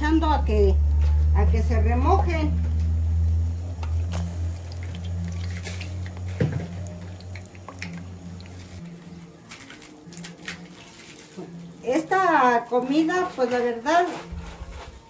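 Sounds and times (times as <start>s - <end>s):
low steady hum: 0.0s - 13.0s
chile pieces splashing into water: 4.0s - 8.8s.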